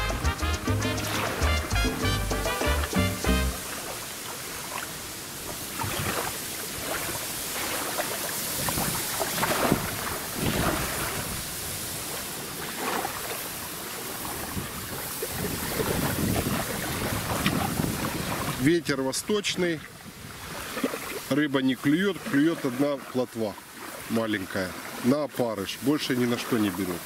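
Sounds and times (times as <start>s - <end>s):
small waves lapping at shore: 2.5s - 27.0s
wind gusting over microphone: 5.3s - 12.6s, 14.0s - 21.3s.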